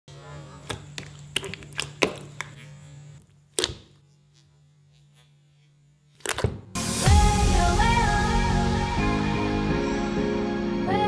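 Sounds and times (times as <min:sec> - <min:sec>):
low electrical hum: 0:00.1 - 0:06.8
slime squelching and popping: 0:00.6 - 0:02.6, 0:03.5 - 0:04.0.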